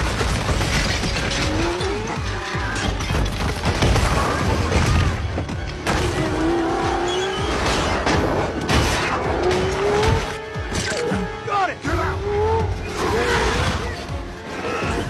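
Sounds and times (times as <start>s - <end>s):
music: 0.0s - 15.0s
car engine revving: 5.8s - 10.6s.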